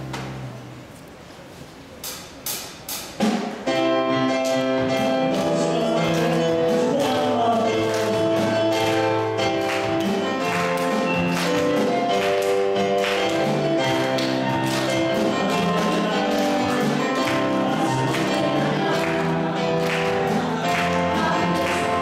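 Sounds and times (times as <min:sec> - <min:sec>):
worship band playing: 0:03.1 - 0:22.0
people singing: 0:05.2 - 0:09.0, 0:13.4 - 0:22.0.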